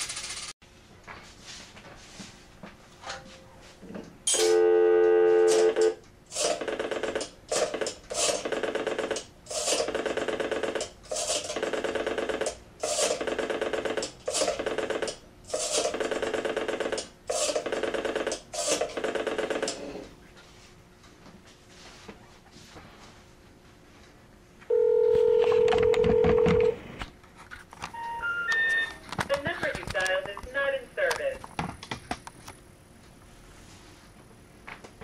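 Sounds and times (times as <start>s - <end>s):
telephone dial tone: 4.4s - 6.0s, 24.7s - 26.8s, 28.0s - 29.0s.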